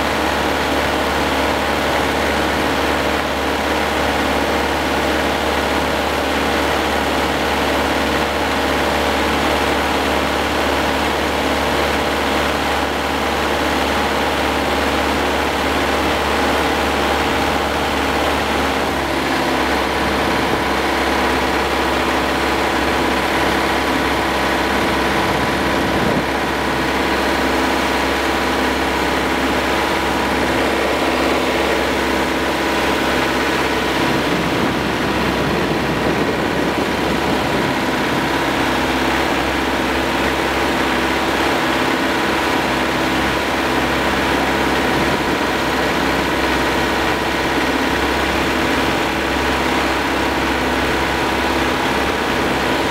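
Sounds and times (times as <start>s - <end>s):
tractor diesel engine running: 0.0s - 52.9s.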